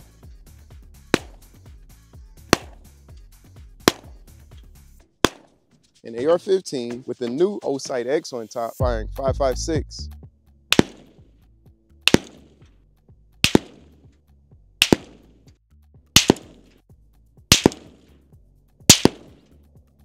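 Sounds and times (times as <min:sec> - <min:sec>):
supersonic bullet cracks: 0:01.1 - 0:01.6, 0:02.5 - 0:02.9, 0:03.8 - 0:04.2, 0:05.2 - 0:05.6, 0:10.7 - 0:11.2, 0:12.0 - 0:12.7, 0:13.4 - 0:14.0, 0:14.8 - 0:15.4, 0:16.2 - 0:16.8, 0:17.5 - 0:18.1, 0:18.9 - 0:19.5
rifle report: 0:02.4 - 0:04.6, 0:05.2 - 0:11.2, 0:12.0 - 0:12.8.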